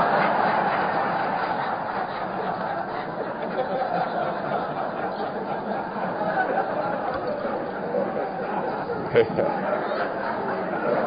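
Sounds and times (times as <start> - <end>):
audience laughing: 0.0 - 11.0.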